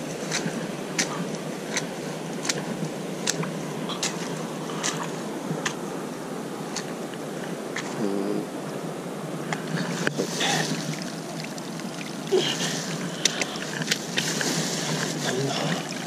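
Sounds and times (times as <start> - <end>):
flowing water rushing: 0.0 - 16.0
footsteps on wet grass: 13.7 - 16.0.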